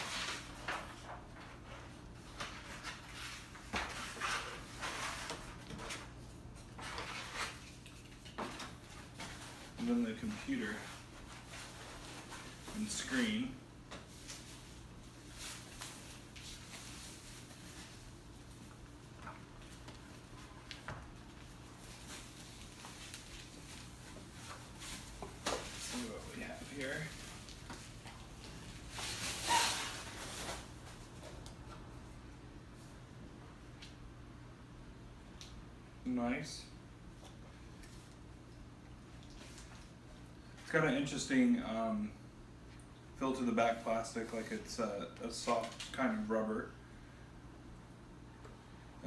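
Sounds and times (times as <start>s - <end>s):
plastic wrapping rustling: 2.3s - 31.2s.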